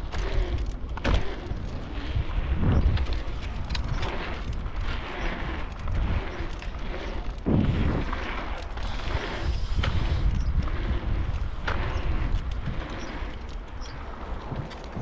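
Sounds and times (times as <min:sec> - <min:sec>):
bicycle tyres rolling on asphalt: 0:00.0 - 0:15.0
bike rattling clicks: 0:00.0 - 0:15.0
wind buffeting microphone: 0:00.0 - 0:15.0.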